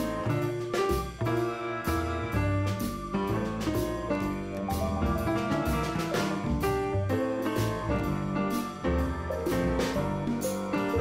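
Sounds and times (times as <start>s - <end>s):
held chords and melody: 0.0s - 11.0s
drum hits: 2.4s - 11.0s.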